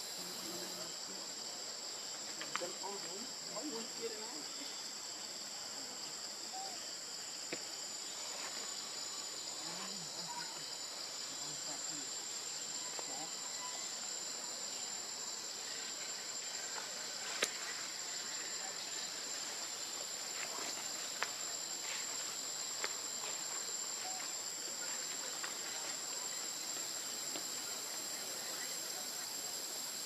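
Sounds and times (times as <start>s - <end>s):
high-pitched insect chorus: 0.0s - 30.0s.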